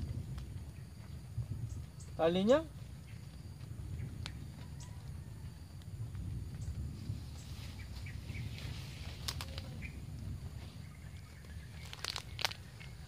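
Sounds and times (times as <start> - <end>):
low rumble: 0.0 - 13.0
rustling of grass and leaves: 0.0 - 13.0
twig clicks and snaps: 9.1 - 9.8, 11.7 - 12.9.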